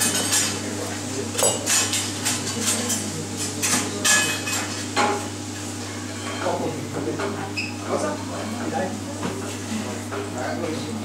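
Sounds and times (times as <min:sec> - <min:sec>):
utensils and dishes clinking: 0:00.0 - 0:08.7.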